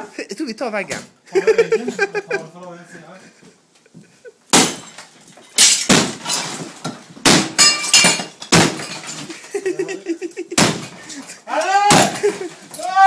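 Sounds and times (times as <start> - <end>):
sledgehammer smashing wall: 4.5 - 9.3, 10.6 - 11.2, 11.8 - 13.0
debris clatter: 4.5 - 12.9.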